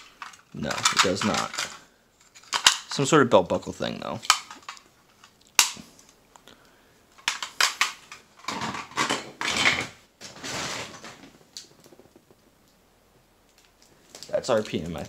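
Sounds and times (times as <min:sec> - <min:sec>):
plastic toys clicking and clattering: 0:00.0 - 0:03.1, 0:04.2 - 0:06.1, 0:07.2 - 0:10.0.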